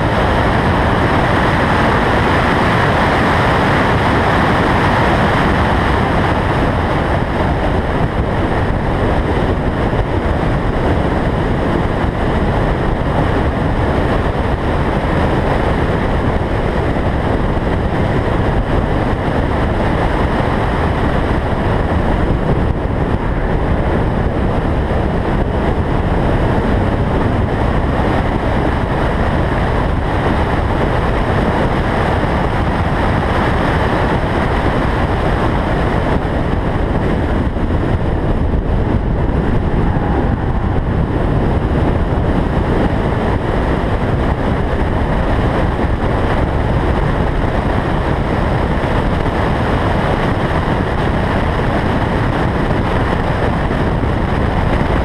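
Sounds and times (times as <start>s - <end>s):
wind rushing over microphone: 0.0s - 55.0s
car engine: 36.2s - 44.4s.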